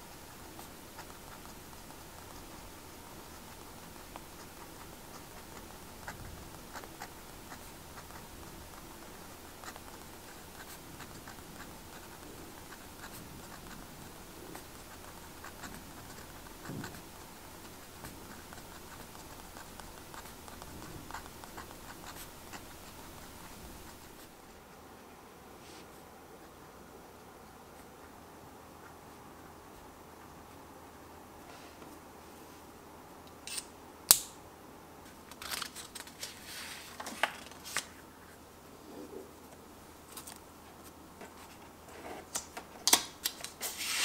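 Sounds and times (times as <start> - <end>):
pen nib scratching on paper: 0.0 - 24.4
faint steady hiss: 0.0 - 44.0.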